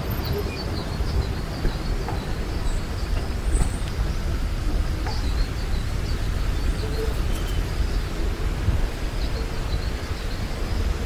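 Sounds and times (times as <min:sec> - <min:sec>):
small birds chirping: 0:00.0 - 0:08.2.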